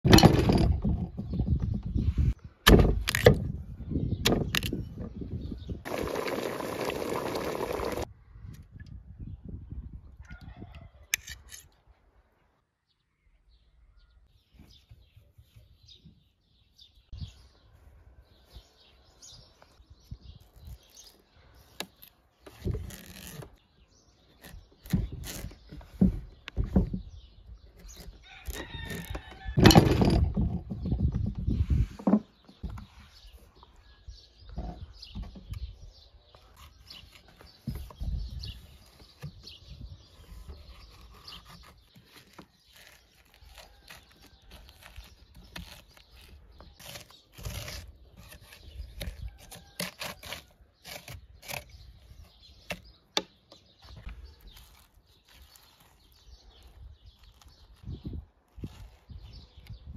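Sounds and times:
scraping out seeds: 40.1s - 52.4s, 54.0s - 59.8s
knife cutting pumpkin: 40.1s - 53.2s.

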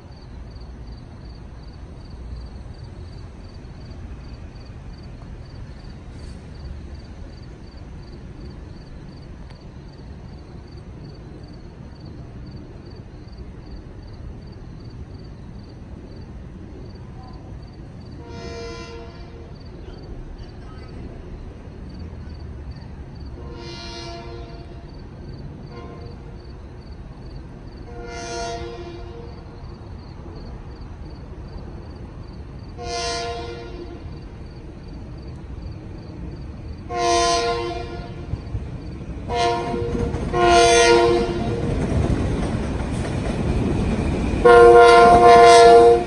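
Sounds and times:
train horn blasts: 18.2s - 19.6s, 23.4s - 24.9s, 25.7s - 26.3s, 27.8s - 29.4s, 32.8s - 34.1s, 36.9s - 38.3s, 39.3s - 41.7s, 44.4s - 46.0s.

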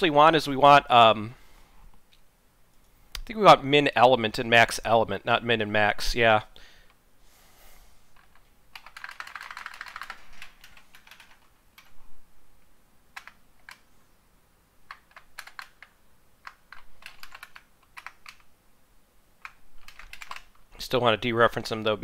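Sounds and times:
typing on computer keyboard: 8.2s - 11.9s, 13.2s - 13.9s, 14.9s - 18.5s, 19.4s - 20.6s.

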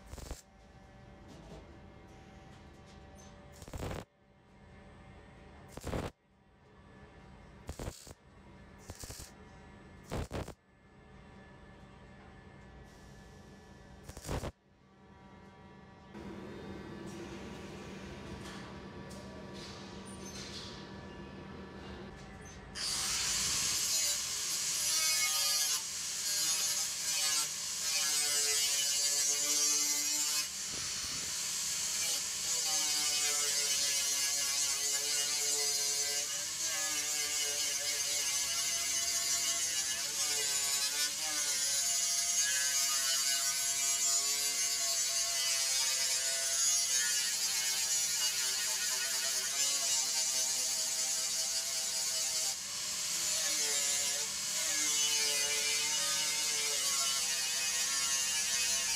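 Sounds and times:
angle grinder grinding steel: 22.8s - 58.9s.

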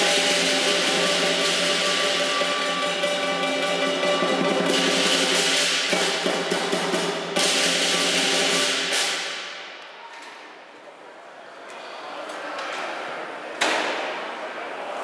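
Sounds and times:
drum beating: 0.0s - 9.6s
crashing cymbals: 0.0s - 9.8s.

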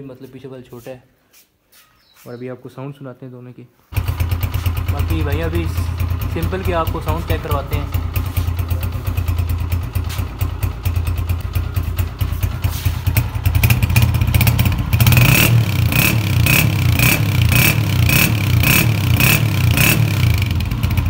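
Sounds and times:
motorcycle engine revving: 3.9s - 21.0s.

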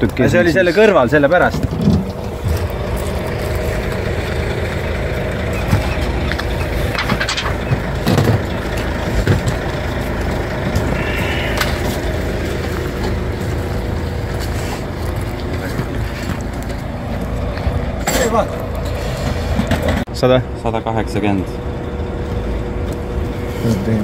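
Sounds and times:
truck engine idling: 0.0s - 24.0s
knocks and clatters: 1.4s - 11.0s, 15.1s - 20.1s.

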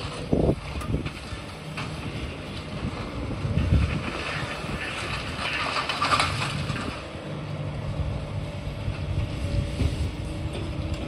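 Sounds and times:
diesel engine running: 0.0s - 11.0s
concrete debris crunching: 3.4s - 7.2s.

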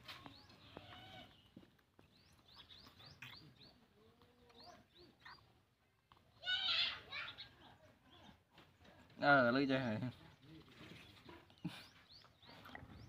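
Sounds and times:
faint bird chirps: 0.1s - 5.7s.

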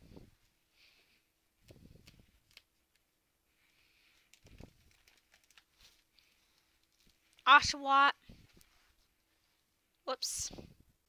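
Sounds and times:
small clicks: 1.6s - 3.1s, 4.2s - 7.5s
plastic sleeve pages rustling: 4.0s - 7.4s.

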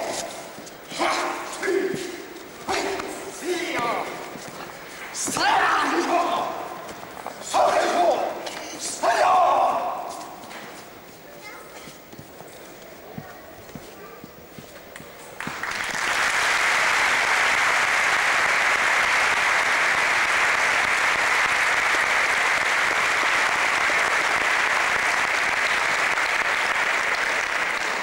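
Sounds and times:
large audience applauding: 15.4s - 28.0s.

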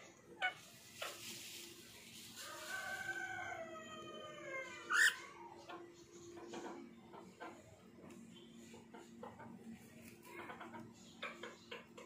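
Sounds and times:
parakeet calling: 4.9s - 5.2s.

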